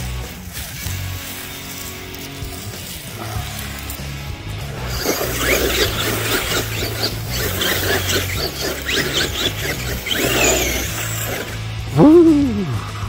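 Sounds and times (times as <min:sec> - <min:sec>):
rock background music: 0:00.0 - 0:13.0
electric motor whine revving: 0:03.0 - 0:11.9.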